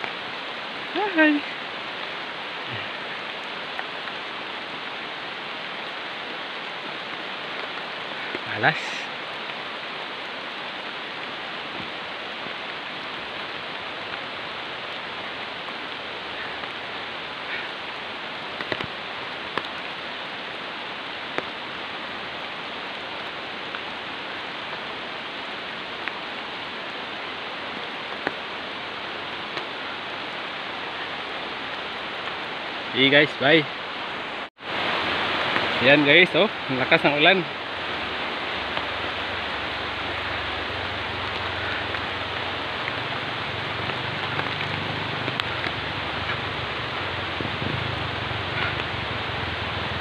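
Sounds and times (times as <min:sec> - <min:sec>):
heavy rain hissing: 0:00.0 - 0:50.0.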